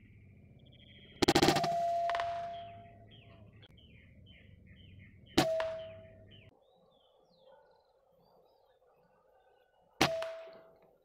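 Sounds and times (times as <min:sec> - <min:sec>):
small birds chirping: 0:00.0 - 0:11.0
air rifle firing: 0:01.2 - 0:02.8, 0:10.0 - 0:10.7.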